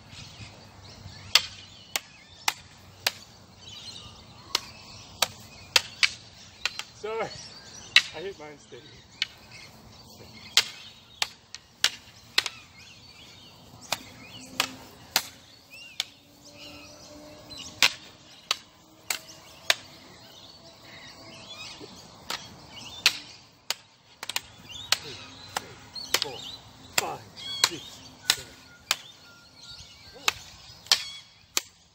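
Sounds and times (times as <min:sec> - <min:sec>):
faint birds twittering: 0:00.0 - 0:31.9
sticks clacking: 0:01.3 - 0:03.3, 0:04.4 - 0:07.0, 0:07.8 - 0:08.3, 0:09.2 - 0:16.8, 0:17.7 - 0:20.0, 0:21.6 - 0:29.3, 0:30.1 - 0:31.8.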